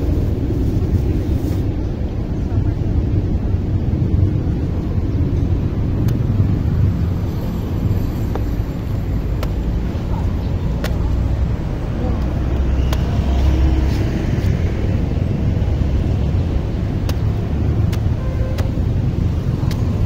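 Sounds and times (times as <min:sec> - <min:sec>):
road traffic rumble: 0:00.0 - 0:20.0
machete chopping coconuts: 0:09.3 - 0:09.8, 0:16.9 - 0:18.9, 0:19.5 - 0:20.0.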